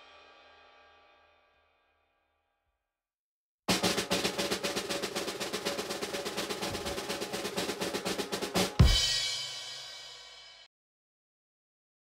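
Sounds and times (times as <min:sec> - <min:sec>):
snare drum roll: 0:03.7 - 0:10.0.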